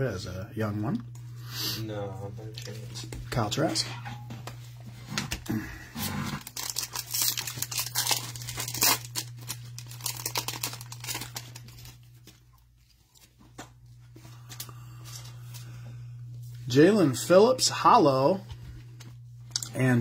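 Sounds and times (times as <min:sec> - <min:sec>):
foil wrapper tearing and crinkling: 0:06.3 - 0:12.4.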